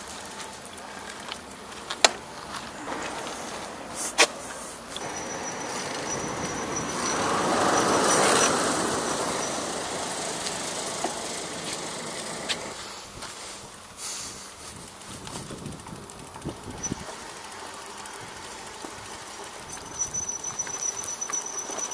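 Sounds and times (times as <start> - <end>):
vehicle passing by: 2.8 - 12.8.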